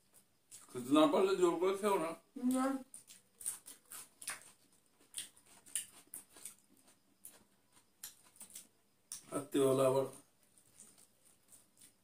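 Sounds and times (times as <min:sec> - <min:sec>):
chewing and lip-smacking: 0:00.1 - 0:00.8, 0:02.8 - 0:09.3, 0:10.4 - 0:12.0.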